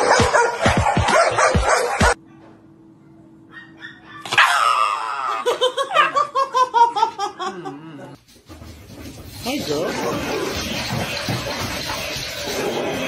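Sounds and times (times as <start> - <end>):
dog screaming: 3.5 - 6.2.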